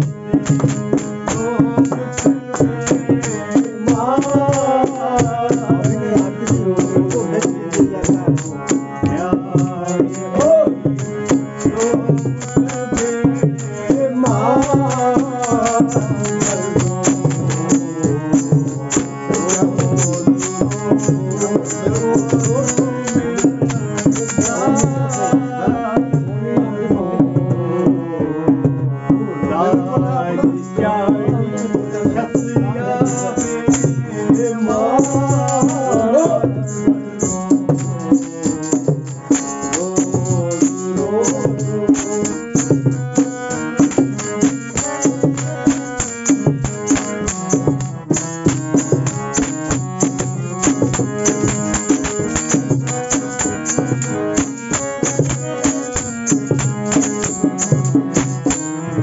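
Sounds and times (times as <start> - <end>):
sliding melody line: 0.0 - 26.0, 29.6 - 59.0
hand drum fast rhythm: 0.0 - 27.9, 29.7 - 59.0.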